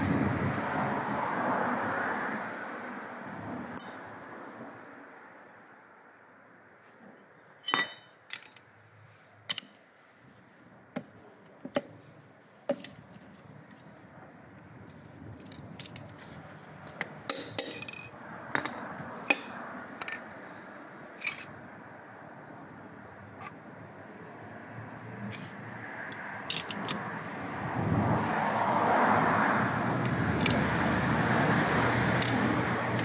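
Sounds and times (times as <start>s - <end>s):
metal engine parts clinking: 3.8s - 4.2s, 7.6s - 8.7s, 9.5s - 9.8s, 14.8s - 16.1s, 17.3s - 20.3s, 21.2s - 21.6s, 25.3s - 27.0s.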